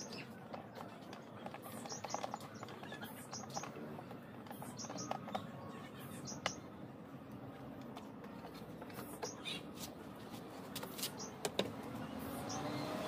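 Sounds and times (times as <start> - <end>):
faint steady background noise: 0.0 - 13.0
high bird chirps: 1.6 - 3.8, 4.5 - 6.8, 12.2 - 13.0.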